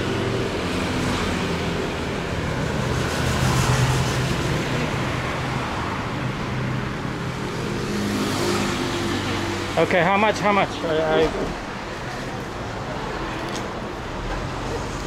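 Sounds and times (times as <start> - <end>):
vehicle engines running on street: 0.0 - 15.0.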